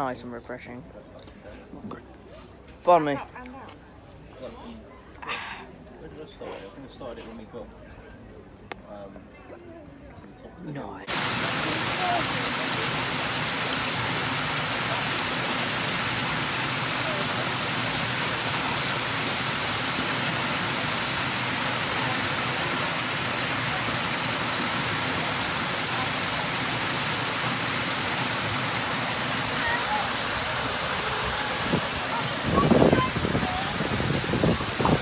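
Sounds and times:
small waterfall splashing: 11.1s - 35.0s.

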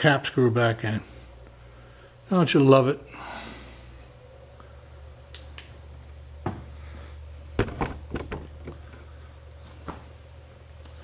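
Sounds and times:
steady low hum: 0.0s - 11.0s
handling clicks and knocks: 7.6s - 9.0s.

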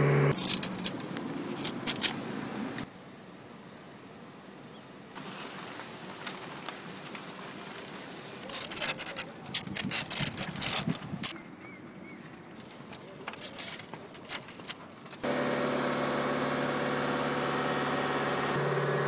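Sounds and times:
paper rustling and crackling: 0.3s - 2.3s, 5.2s - 11.4s, 12.2s - 15.2s
faint hiss: 1.2s - 10.2s.

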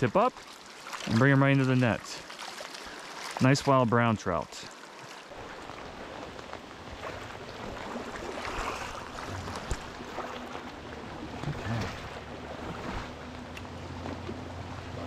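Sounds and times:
rain falling on a stream: 4.6s - 8.7s.

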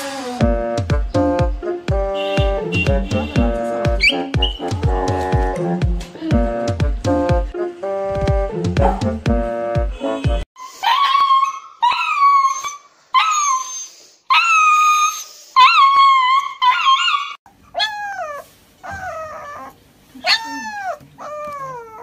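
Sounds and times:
puppy whining: 4.0s - 4.9s, 10.0s - 22.0s
puppy howling: 10.7s - 13.7s, 14.3s - 22.0s.

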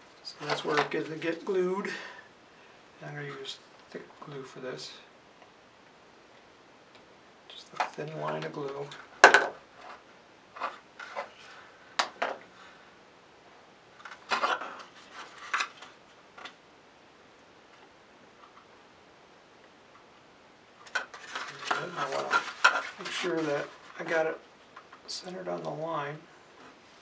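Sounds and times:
person speaking: 0.2s - 2.2s, 3.0s - 5.1s, 7.5s - 9.1s, 21.4s - 24.4s, 25.0s - 26.3s
paper parts clicking and rubbing: 20.8s - 24.0s.

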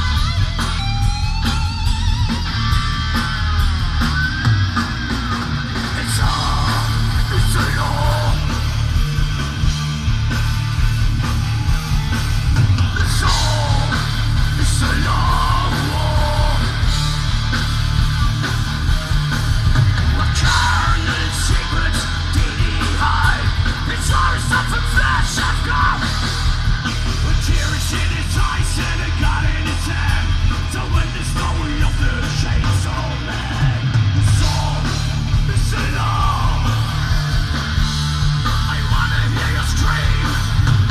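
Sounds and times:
bass guitar: 0.0s - 40.9s
distorted electric guitars: 0.0s - 40.9s
shouted vocals: 5.9s - 8.5s, 27.6s - 37.2s.

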